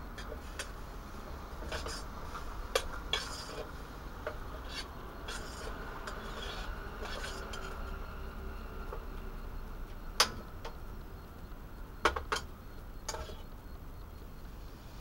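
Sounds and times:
utensil scraping metal pot: 1.6s - 8.0s.

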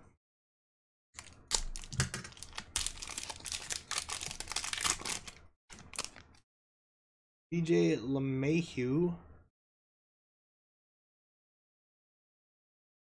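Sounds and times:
foil wrapper tearing and crinkling: 1.2s - 6.4s.

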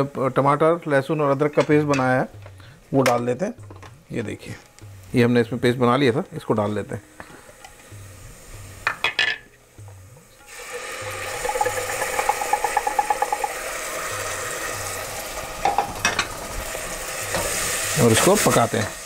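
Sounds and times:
paste sizzling in hot oil: 9.8s - 19.0s
jar knocking against saucepan: 11.2s - 13.6s, 15.6s - 16.3s.

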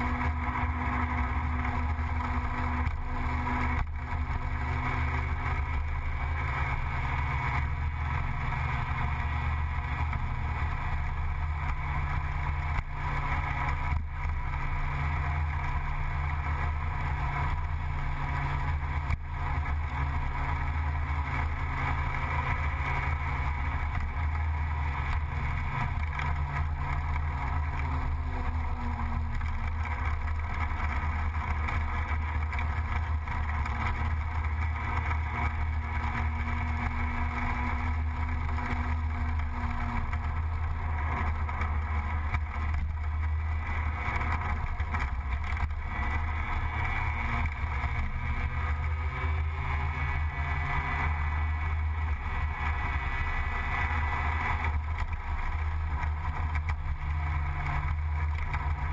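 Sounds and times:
road and wind noise: 0.0s - 58.9s
scooter engine running steadily: 0.0s - 58.9s.

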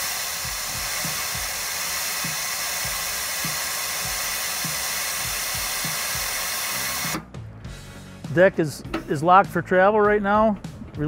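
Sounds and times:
compressed air hissing: 0.0s - 8.3s.

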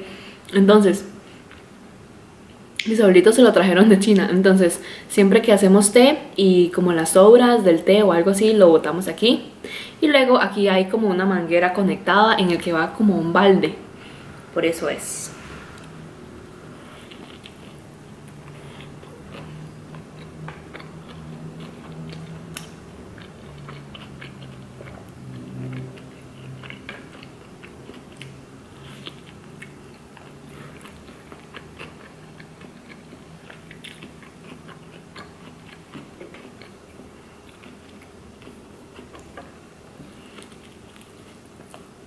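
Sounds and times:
woman chewing food: 15.8s - 42.0s.

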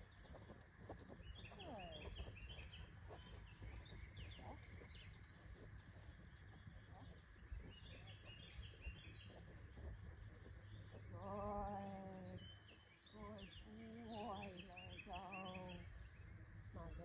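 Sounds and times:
songbirds chirping: 0.0s - 17.0s.

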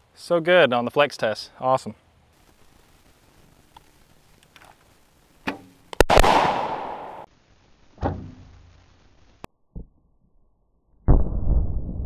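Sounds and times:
exploding target bang: 6.0s - 7.3s.

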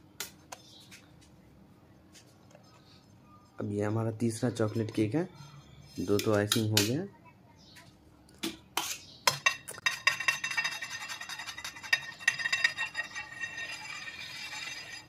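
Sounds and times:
knife clinking on metal turntable: 9.3s - 15.0s
palette knife scraping cream: 10.1s - 15.0s.

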